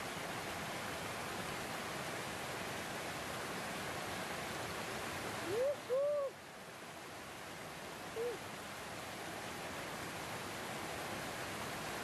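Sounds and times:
stream water rushing over rocks: 0:00.0 - 0:12.0
hoot-like calls: 0:05.4 - 0:06.4, 0:08.1 - 0:08.4.

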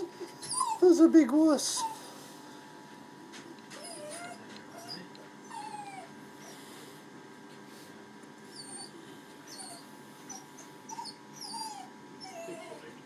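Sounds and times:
dog whimpering: 0:00.0 - 0:02.1, 0:03.7 - 0:06.6, 0:08.5 - 0:13.0.

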